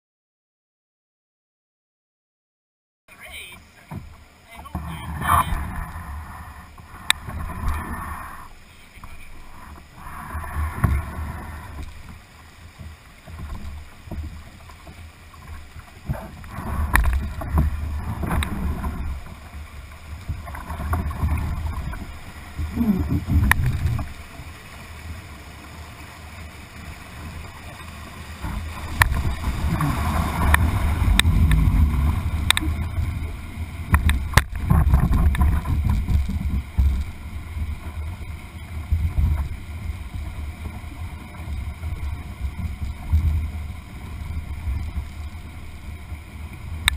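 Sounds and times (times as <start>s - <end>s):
whitewater rushing against canoe: 3.1s - 46.9s
wind buffeting: 28.3s - 38.2s.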